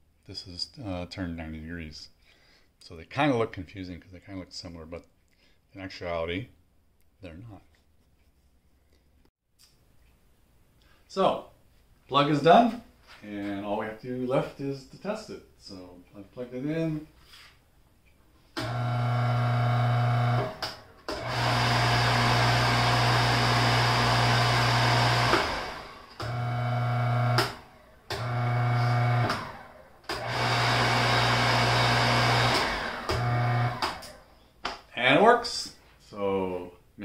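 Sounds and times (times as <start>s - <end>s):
electric motor humming: 18.6s - 34.2s.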